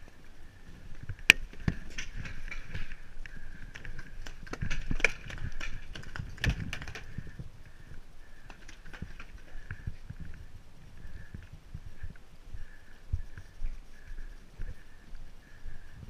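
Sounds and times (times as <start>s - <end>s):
sharp cracks: 1.0s - 10.4s.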